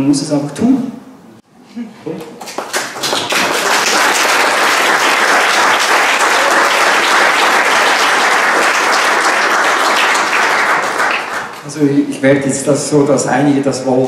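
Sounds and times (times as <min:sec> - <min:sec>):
audience applauding: 0:02.4 - 0:11.7.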